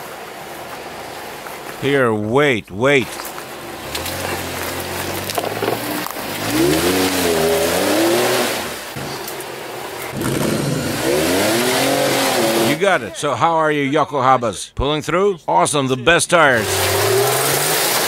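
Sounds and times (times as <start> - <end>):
car engine revving in mud: 3.1 - 13.0, 16.6 - 18.0.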